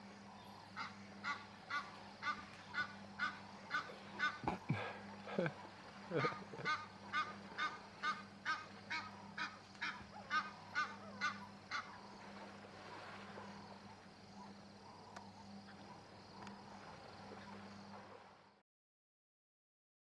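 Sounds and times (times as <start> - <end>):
low steady hum: 0.0 - 18.6
bird honking: 0.4 - 13.8.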